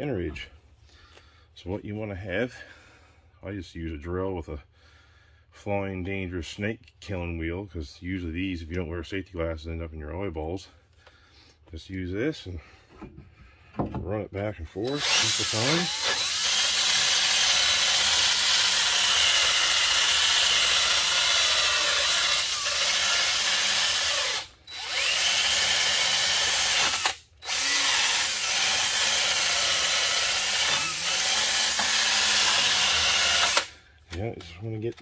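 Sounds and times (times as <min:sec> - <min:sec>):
drill motor humming: 0:14.9 - 0:33.7.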